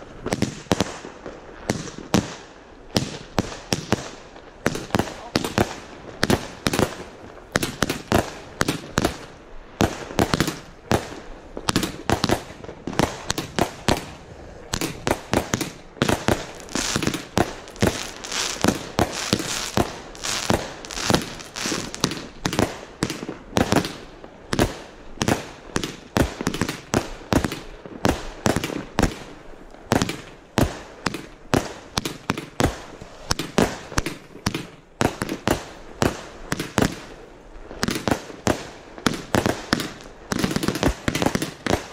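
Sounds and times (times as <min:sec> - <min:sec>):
fireworks hissing and crackling: 0:00.0 - 0:41.9
fireworks shots: 0:00.2 - 0:37.2, 0:37.8 - 0:41.9.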